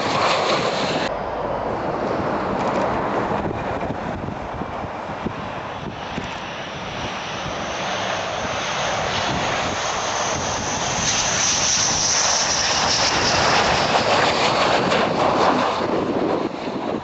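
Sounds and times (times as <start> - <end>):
jet engines approaching: 0.0 - 17.0
high whine: 0.7 - 7.8.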